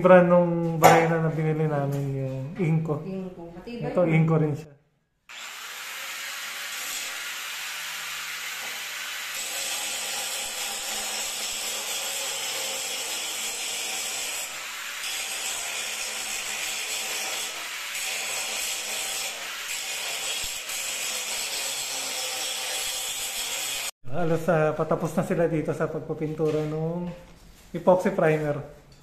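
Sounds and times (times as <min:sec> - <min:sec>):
angle grinder grinding metal: 0:05.3 - 0:23.9.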